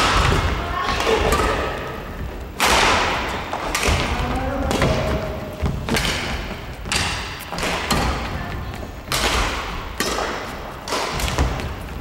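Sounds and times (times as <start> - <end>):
badminton rackets hitting shuttlecock: 0.0 - 12.0
footsteps on wooden floor: 4.1 - 9.1.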